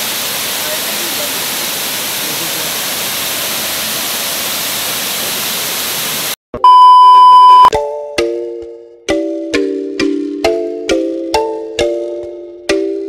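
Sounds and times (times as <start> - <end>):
waterfall rushing: 0.0 - 6.4
loud steady test tone beep: 6.6 - 7.7.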